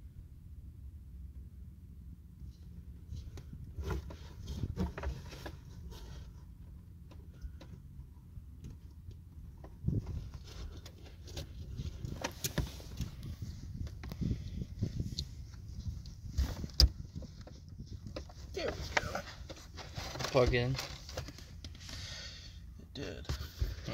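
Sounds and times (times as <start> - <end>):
low wind rumble on microphone: 0.0 - 6.2, 8.3 - 19.5
car seat parts knocking and rattling: 3.1 - 21.9, 23.2 - 23.9.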